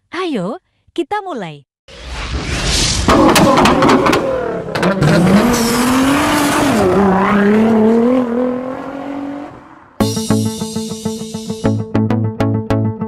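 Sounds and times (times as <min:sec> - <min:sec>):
car engine accelerating: 0:03.1 - 0:10.0.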